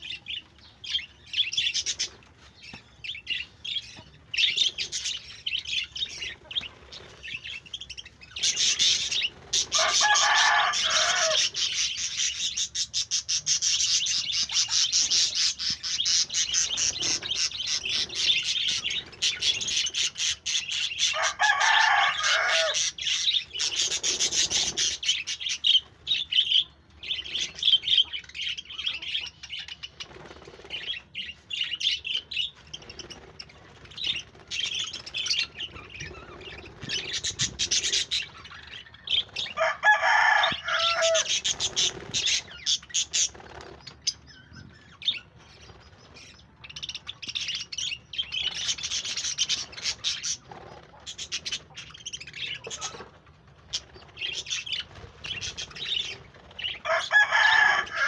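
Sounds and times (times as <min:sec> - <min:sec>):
budgerigars chattering: 0:03.2 - 0:21.3.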